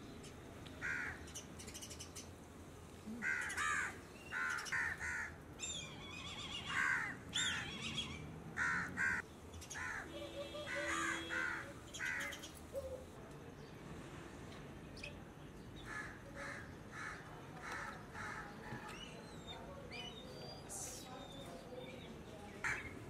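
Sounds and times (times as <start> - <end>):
crows cawing: 0.8 - 1.2, 3.2 - 5.4, 6.6 - 7.7, 8.6 - 9.2, 9.8 - 10.1, 10.7 - 12.4, 15.9 - 18.6.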